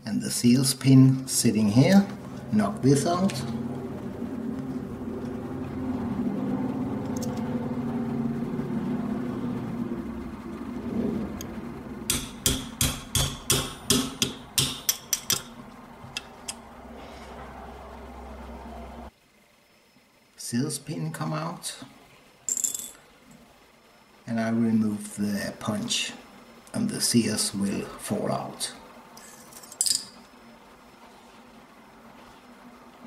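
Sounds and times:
steady low hum: 0.0s - 33.0s
hammer tapping metal punch: 12.1s - 16.3s.

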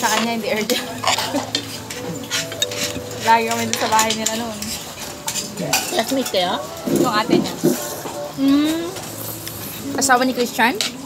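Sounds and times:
fork scraping metal pan: 0.0s - 7.9s.

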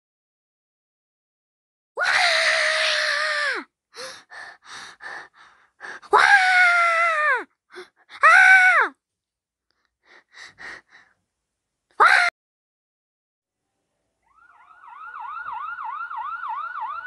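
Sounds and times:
shrill screams: 2.0s - 3.7s, 6.1s - 7.4s, 8.2s - 8.9s, 12.0s - 12.3s.

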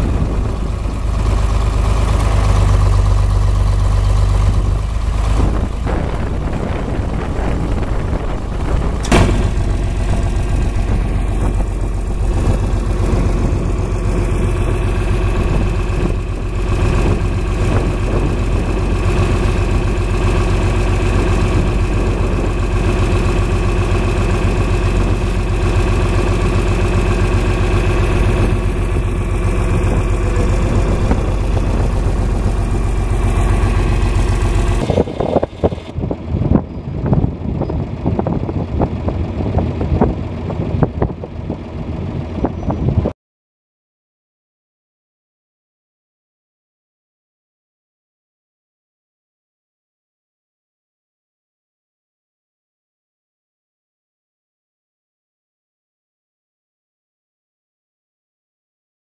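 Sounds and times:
farm vehicle engine idling: 0.0s - 43.1s.

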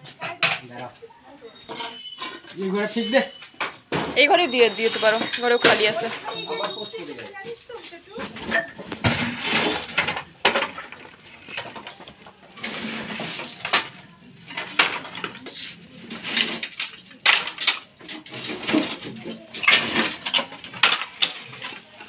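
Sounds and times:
wood planks knocking and scraping: 8.2s - 22.0s.

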